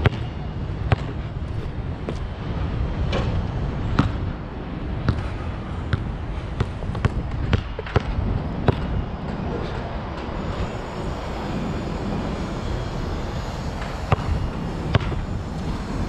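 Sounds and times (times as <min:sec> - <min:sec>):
basketball bouncing on court: 0:00.0 - 0:01.2, 0:04.0 - 0:04.2, 0:05.0 - 0:09.0, 0:14.0 - 0:14.3, 0:14.9 - 0:15.3.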